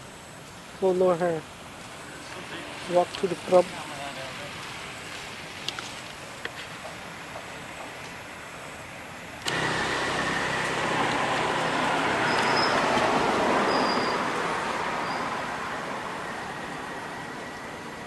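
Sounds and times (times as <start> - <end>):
vehicle passing by: 9.5 - 18.0.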